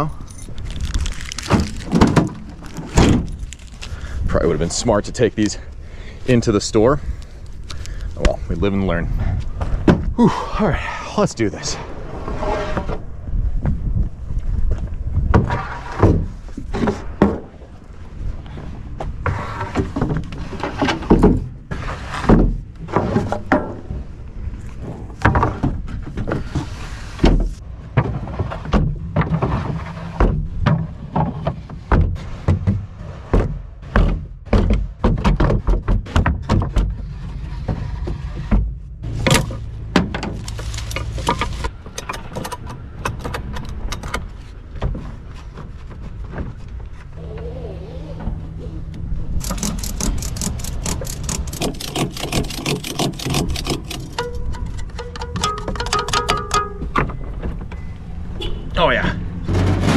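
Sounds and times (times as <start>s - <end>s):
wooden boards thunking and scraping: 0.8s - 4.0s, 9.3s - 10.2s, 15.2s - 17.8s, 18.9s - 24.2s, 24.8s - 46.9s, 59.3s - 59.9s.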